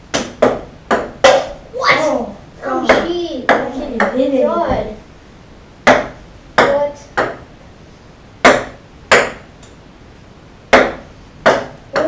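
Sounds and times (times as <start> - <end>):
ping-pong ball bouncing on wood: 0.1 - 1.6, 5.9 - 7.5, 8.4 - 9.5, 10.7 - 12.0.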